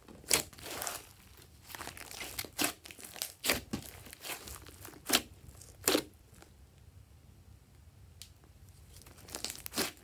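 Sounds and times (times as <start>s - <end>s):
slime crackling and popping: 0.2s - 6.4s, 9.0s - 10.0s.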